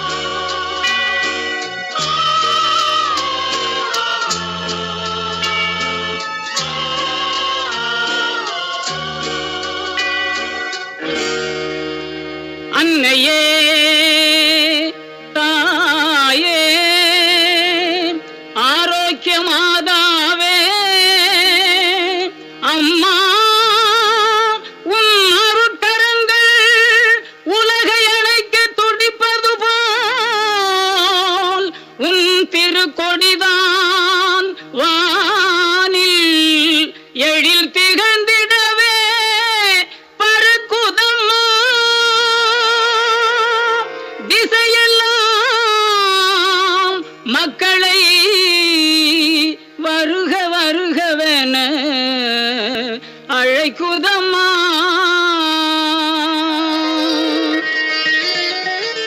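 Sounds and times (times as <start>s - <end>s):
woman singing a hymn: 12.7s - 57.7s.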